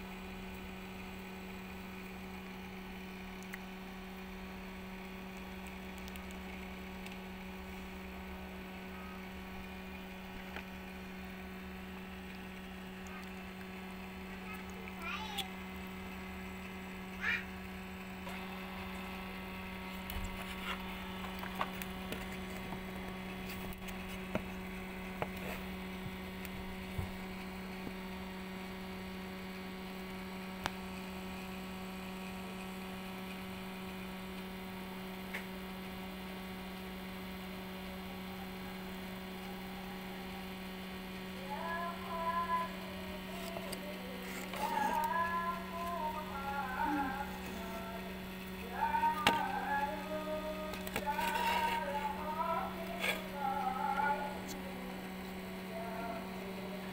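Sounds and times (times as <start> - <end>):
electrical hum: 0.0 - 56.9.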